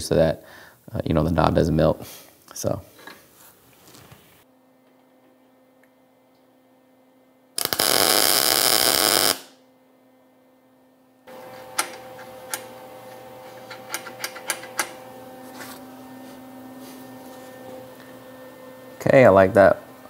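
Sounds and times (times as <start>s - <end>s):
low steady hum: 4.4s - 20.0s
welder crackling: 7.6s - 9.6s.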